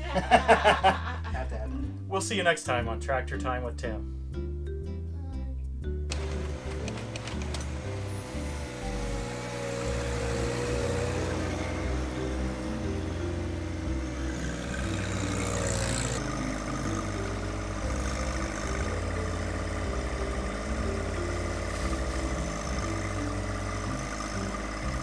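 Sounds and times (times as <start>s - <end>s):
tractor diesel engine running: 6.1s - 25.0s.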